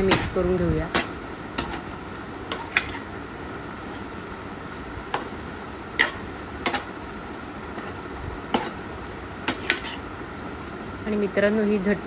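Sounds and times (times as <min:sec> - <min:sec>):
frying hiss: 0:00.0 - 0:12.0
spatula scraping pan: 0:07.8 - 0:10.0.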